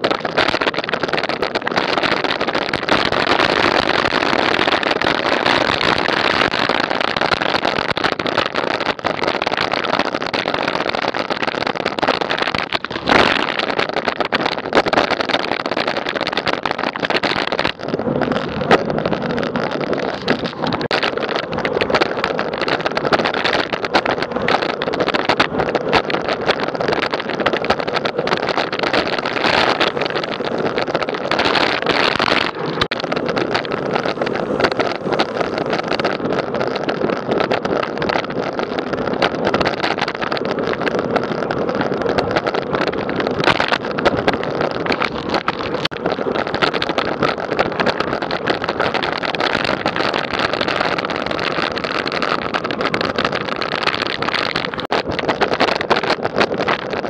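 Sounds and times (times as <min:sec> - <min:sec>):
bicycle road rumble: 0:00.0 - 0:57.0
wind on microphone: 0:00.0 - 0:57.0.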